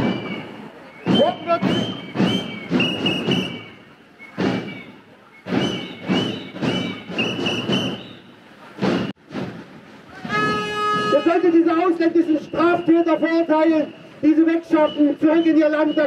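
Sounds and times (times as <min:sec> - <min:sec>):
loud irregular thumps: 0:00.0 - 0:08.2, 0:08.8 - 0:11.4.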